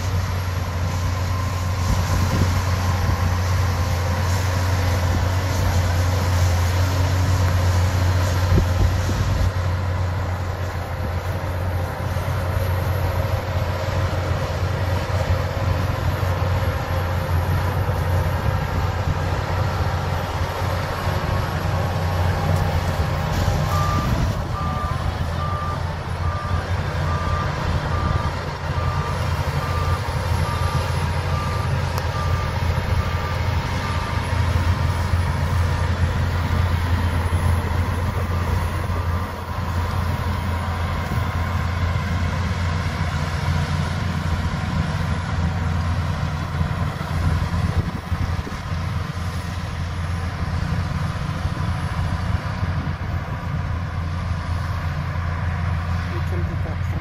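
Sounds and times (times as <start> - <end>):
bulldozer diesel engine running: 0.0 - 57.0
reversing alarm beeping: 0.3 - 5.1, 15.8 - 42.9.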